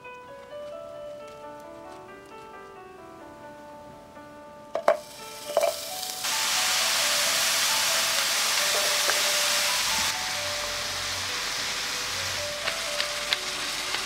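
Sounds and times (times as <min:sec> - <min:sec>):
tongs clinking on frying pan: 0:04.8 - 0:06.1
meat sizzling in a pan: 0:04.8 - 0:14.0.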